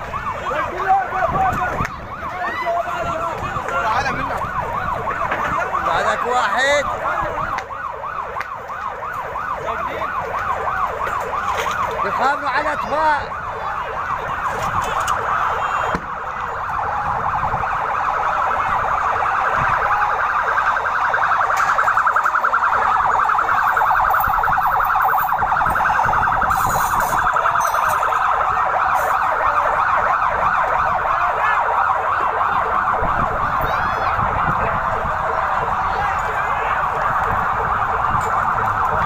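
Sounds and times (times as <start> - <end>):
emergency vehicle sirens: 0.0 - 39.0.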